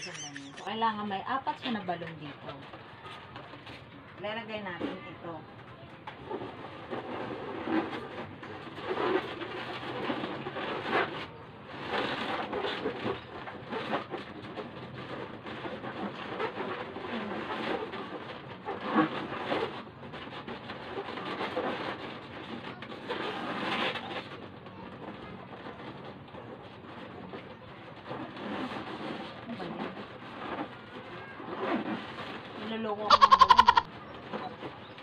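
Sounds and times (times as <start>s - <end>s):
latex balloons squeaking: 0.0s - 0.8s, 32.8s - 35.0s.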